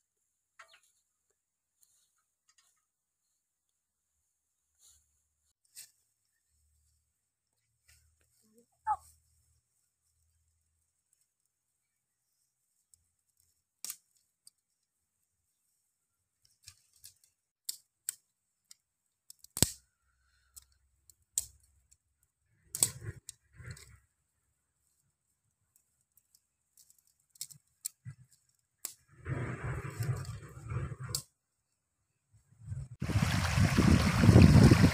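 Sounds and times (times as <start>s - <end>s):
twigs clicking and snapping: 12.9s - 14.8s, 16.4s - 24.0s, 25.7s - 29.0s.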